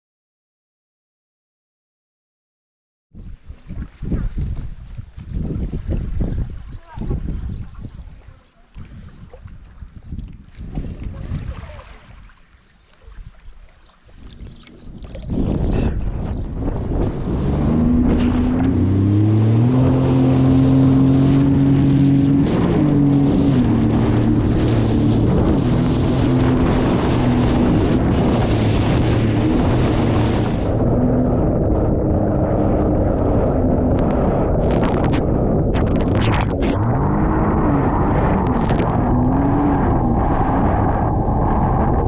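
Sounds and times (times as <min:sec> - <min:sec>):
rushing wind: 0:03.2 - 0:12.5, 0:14.1 - 0:42.0
watercraft engine revving: 0:14.3 - 0:42.0.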